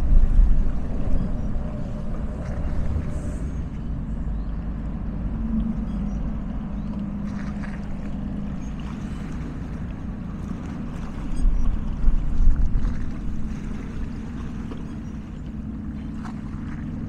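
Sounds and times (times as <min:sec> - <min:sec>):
boat engines rumbling: 0:00.0 - 0:17.0
waves lapping against rocks: 0:06.7 - 0:17.0.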